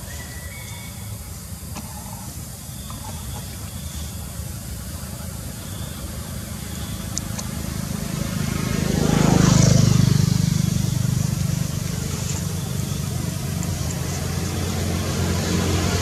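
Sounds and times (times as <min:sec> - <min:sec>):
vehicle engine passing: 0:06.3 - 0:16.0.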